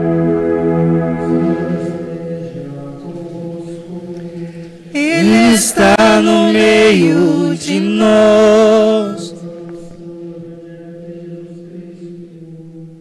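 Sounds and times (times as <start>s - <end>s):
held keyboard chord: 0.0s - 3.0s
person singing a chant: 1.1s - 13.0s.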